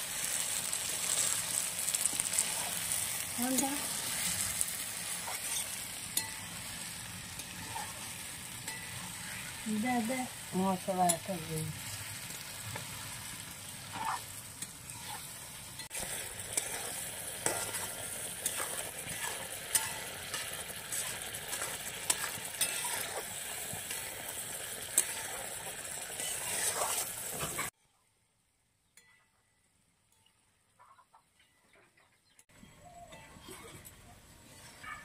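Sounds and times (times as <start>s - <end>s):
food sizzling in oil: 0.0s - 27.8s
metal spatula scraping a wok: 0.6s - 10.2s, 10.9s - 27.7s, 33.0s - 35.0s.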